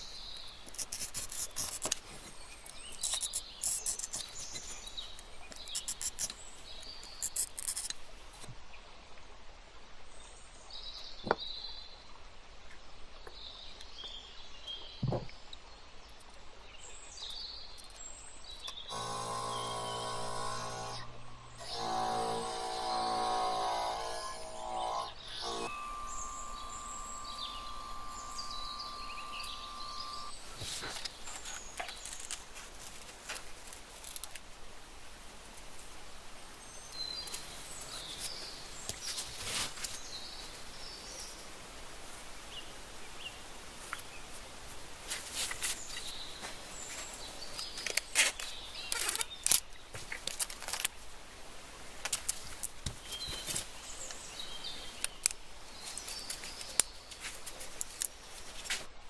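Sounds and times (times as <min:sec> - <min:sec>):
faint high chirping: 0:24.2 - 0:30.5.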